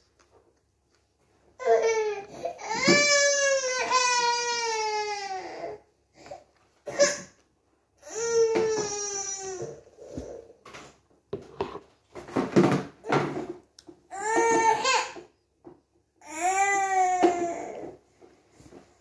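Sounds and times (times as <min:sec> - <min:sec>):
toddler crying: 0:01.6 - 0:05.8, 0:08.0 - 0:10.5, 0:14.1 - 0:15.3, 0:16.2 - 0:18.0.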